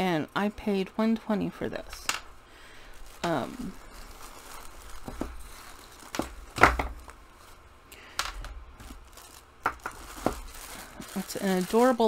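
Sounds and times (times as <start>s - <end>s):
plastic wrapping crinkling: 1.6s - 12.0s
fabric bag rustling: 2.6s - 7.7s, 8.7s - 12.0s.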